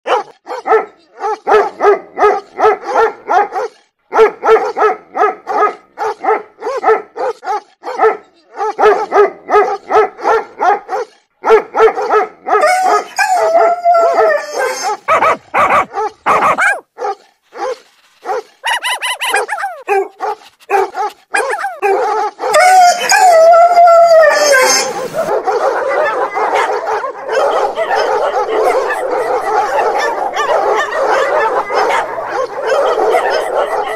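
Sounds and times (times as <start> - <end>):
dog barking: 0.1 - 13.7, 14.6 - 22.8, 24.7 - 33.9
dog howling: 12.5 - 16.6, 20.8 - 33.9.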